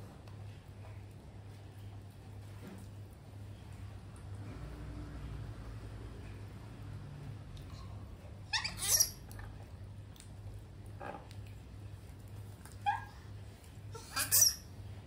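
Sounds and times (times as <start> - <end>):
baby monkey squeaking: 8.5 - 9.4, 14.0 - 14.7.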